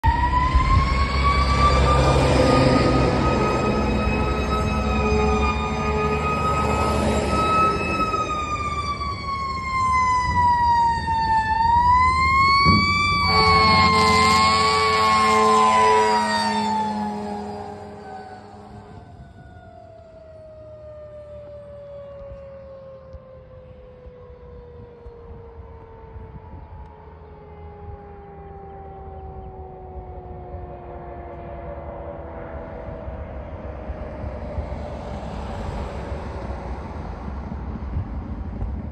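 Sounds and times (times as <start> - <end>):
fire engine siren wailing: 0.0 - 38.9
truck engine rumble: 0.0 - 38.9
deep truck horn: 0.1 - 8.3, 12.6 - 19.2.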